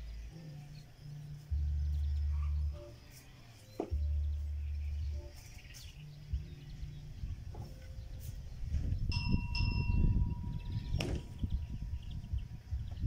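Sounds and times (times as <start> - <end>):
faint bird chirps: 0.0 - 13.0
wind buffeting microphone: 6.3 - 13.0.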